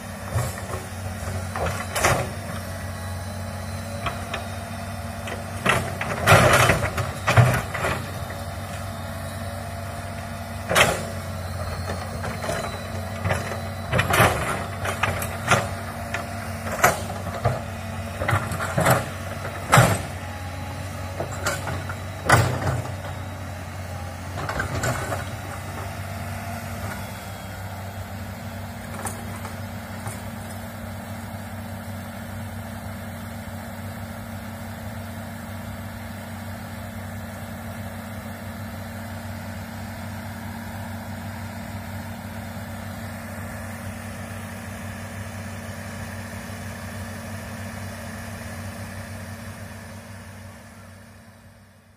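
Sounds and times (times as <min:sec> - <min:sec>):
excavator diesel engine running: 0:00.0 - 0:51.9.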